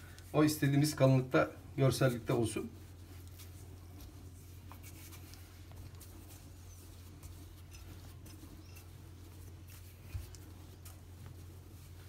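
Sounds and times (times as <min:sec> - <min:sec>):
rolling pin on dough: 0:02.0 - 0:12.0.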